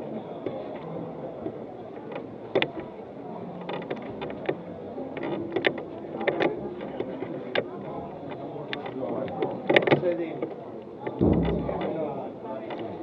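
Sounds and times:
sharp clicks and knocks: 11.0s - 12.9s.

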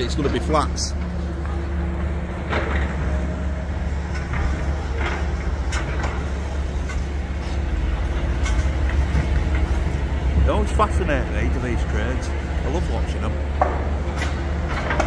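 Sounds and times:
engine droning: 0.0s - 15.0s
knocks and clatters: 4.0s - 7.2s, 8.1s - 10.6s, 13.5s - 15.0s.

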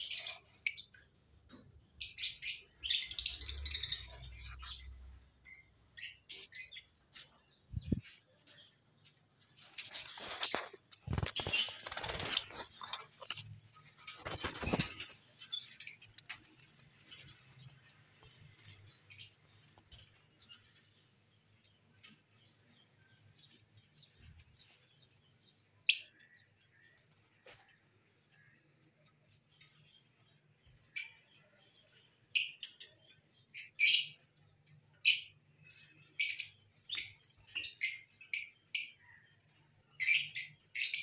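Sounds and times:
birds chirping: 0.0s - 41.0s
rustling and scraping: 6.3s - 20.9s.

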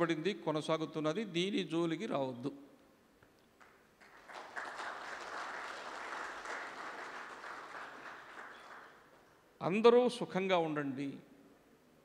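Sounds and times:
audience applauding: 3.6s - 9.3s.

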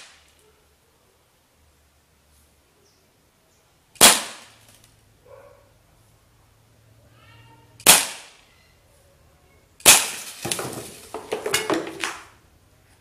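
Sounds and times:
air pistol shots: 0.0s - 0.2s, 4.0s - 4.6s, 7.8s - 8.4s, 9.8s - 10.2s
cans and bottles clattering: 10.0s - 12.3s.

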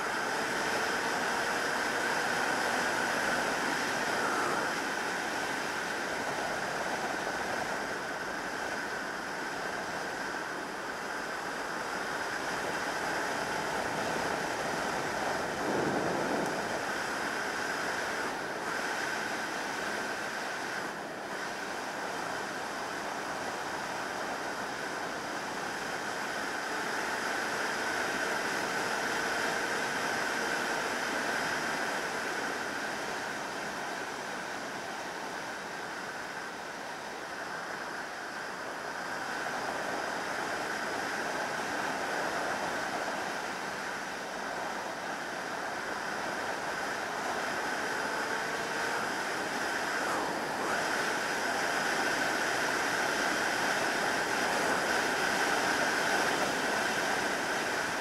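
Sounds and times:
wind buffeting microphone: 13.5s - 18.4s.

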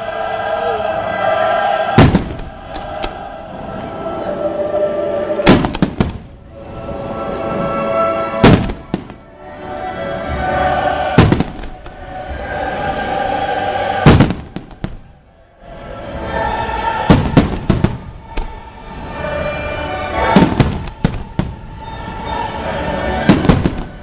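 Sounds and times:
music: 0.0s - 24.0s
fireworks bursting in sharp bangs: 2.0s - 3.2s, 5.4s - 6.4s, 8.4s - 9.3s, 11.2s - 12.0s, 14.0s - 15.1s, 17.1s - 18.5s, 20.2s - 21.9s, 23.2s - 24.0s.

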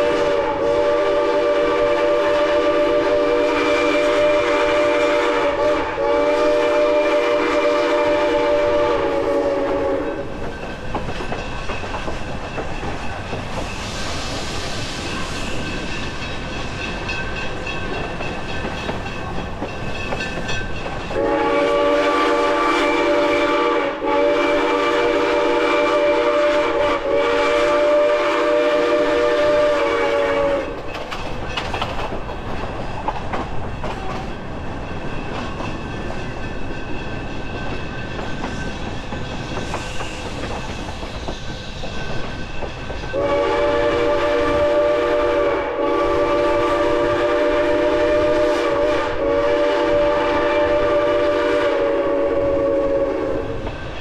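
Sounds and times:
steam locomotive chime whistle: 0.0s - 10.5s, 13.7s - 30.8s, 43.0s - 53.7s
train rolling on rails: 0.0s - 54.0s.

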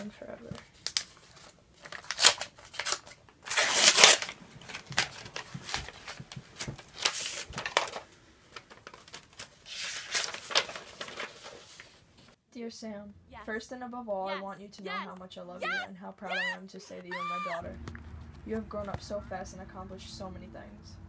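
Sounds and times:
paper rustling and crinkling: 0.0s - 12.4s.

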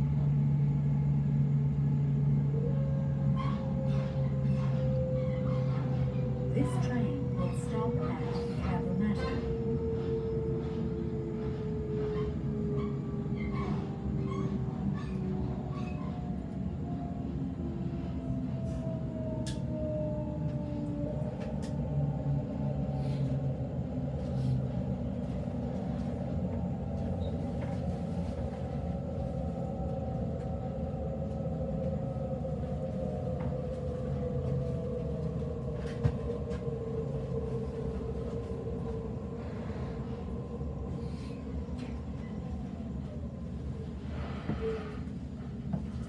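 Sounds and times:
train wheels rumbling on rails: 0.0s - 46.0s.

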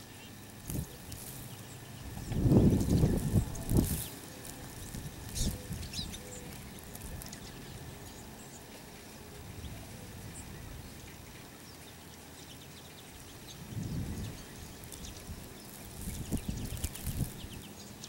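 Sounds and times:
steady outdoor hiss: 0.0s - 18.0s
faint bird calls: 0.1s - 11.4s.

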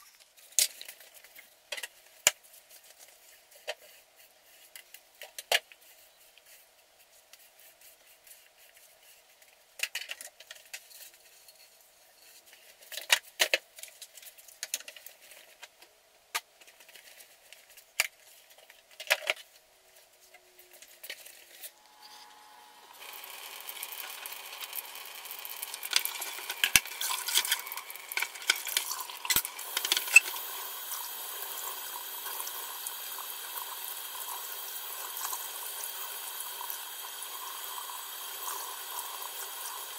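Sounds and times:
broom sweeping tiled floor: 19.9s - 23.2s
faucet running into steel sink: 22.9s - 39.9s.

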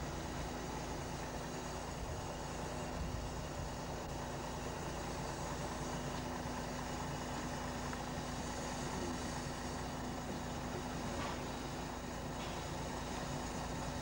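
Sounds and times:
milk pump running: 0.0s - 14.0s
truck engine running: 0.0s - 14.0s.

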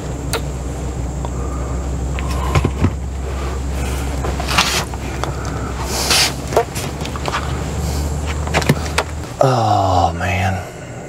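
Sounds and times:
steady low hum: 0.0s - 11.0s
plastic pipes clicking and rustling: 2.2s - 3.1s, 4.1s - 7.6s, 8.2s - 9.2s.

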